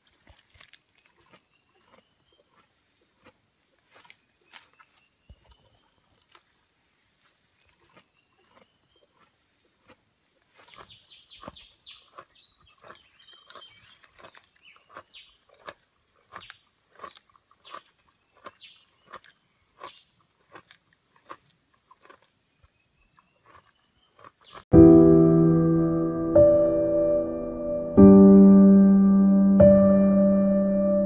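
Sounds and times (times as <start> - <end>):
animal chewing leaves: 0.0 - 5.6, 7.6 - 22.4, 23.2 - 24.7.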